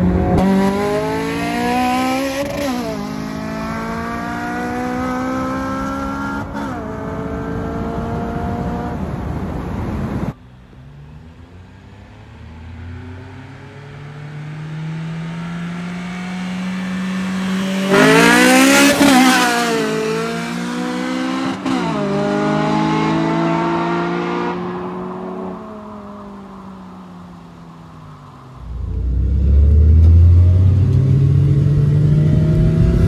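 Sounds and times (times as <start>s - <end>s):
cars accelerating hard: 0.0s - 10.4s, 11.1s - 33.0s.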